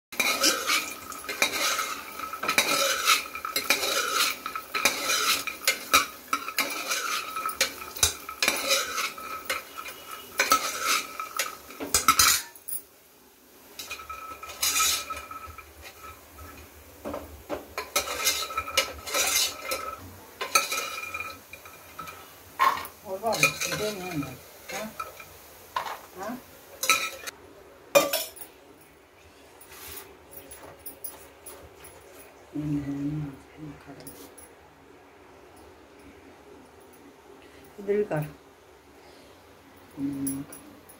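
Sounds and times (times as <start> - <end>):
spoon scraping metal pot: 0.2 - 12.6, 13.8 - 16.7, 17.8 - 25.2, 26.8 - 27.3.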